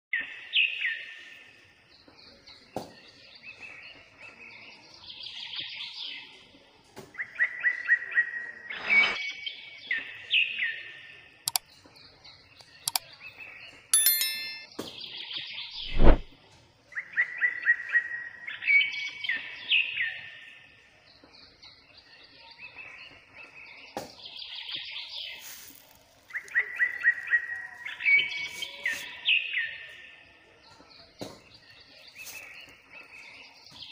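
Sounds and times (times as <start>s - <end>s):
short bright chime: 14.0s - 14.7s.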